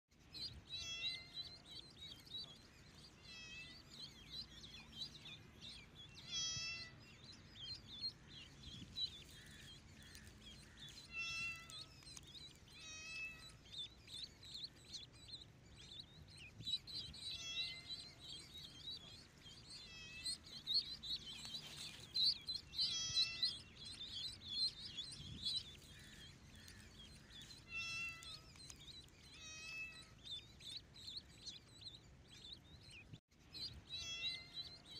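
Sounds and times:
ducklings peeping: 0:00.1 - 0:34.9
kitten meowing: 0:00.8 - 0:01.3, 0:06.2 - 0:06.9, 0:11.1 - 0:11.8, 0:22.8 - 0:23.5, 0:34.0 - 0:34.6.

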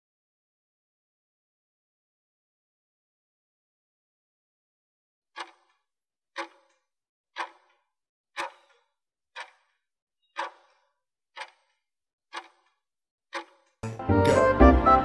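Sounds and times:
clock ticking: 0:05.4 - 0:05.8, 0:06.4 - 0:06.8, 0:07.4 - 0:07.8, 0:08.4 - 0:08.8, 0:09.4 - 0:09.7, 0:10.4 - 0:10.8, 0:11.4 - 0:14.9.

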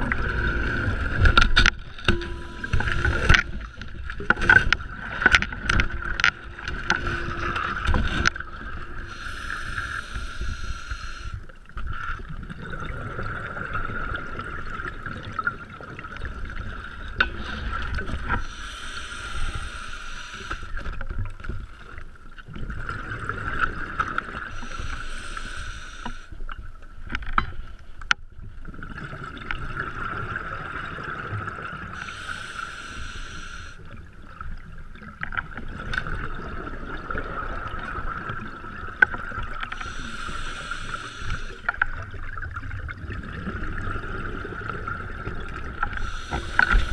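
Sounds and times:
exhaled bubbles underwater: 0:00.0 - 0:27.0, 0:28.4 - 0:46.9
muffled regulator hiss: 0:02.1 - 0:04.2, 0:09.1 - 0:11.4, 0:18.4 - 0:20.9, 0:24.5 - 0:26.4, 0:32.0 - 0:33.9, 0:39.7 - 0:41.7, 0:45.9 - 0:46.9.

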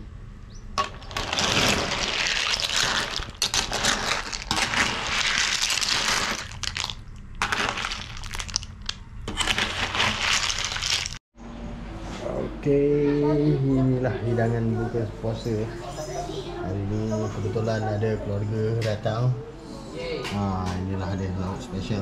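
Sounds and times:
ladle stirring shells in wok: 0:00.8 - 0:11.2.

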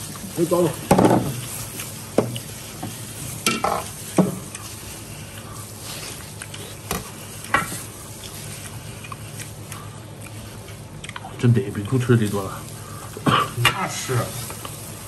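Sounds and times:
sticky squelching chewing: 0:05.3 - 0:07.5, 0:08.1 - 0:12.1.

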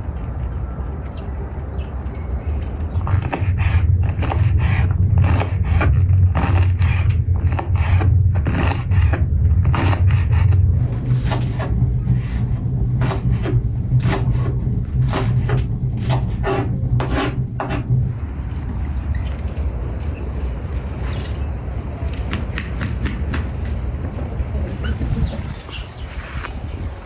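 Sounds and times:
low hum: 0:00.0 - 0:27.0
knife chopping on wooden board: 0:13.0 - 0:17.9.

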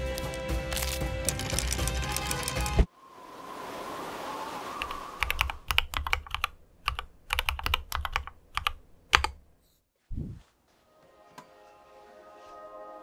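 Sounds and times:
mechanical keyboard typing: 0:04.8 - 0:09.4.

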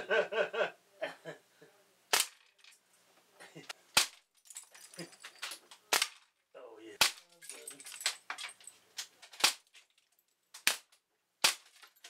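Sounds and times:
air rifle shots: 0:02.1 - 0:02.4.

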